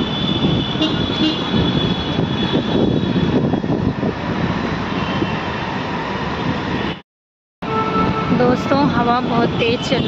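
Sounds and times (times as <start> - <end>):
wind buffeting microphone: 0.0 - 5.5, 7.9 - 10.0.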